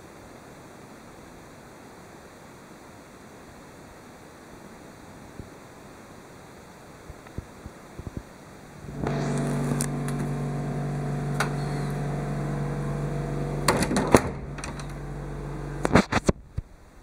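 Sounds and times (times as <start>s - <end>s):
electric motor hum: 8.8s - 16.3s
sharp clicks and knocks: 11.3s - 11.7s, 13.6s - 15.1s, 15.8s - 16.7s.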